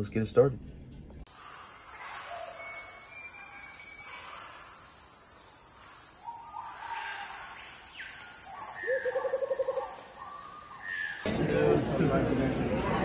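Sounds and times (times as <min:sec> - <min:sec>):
high-pitched cricket-like chirring: 0:01.3 - 0:11.3.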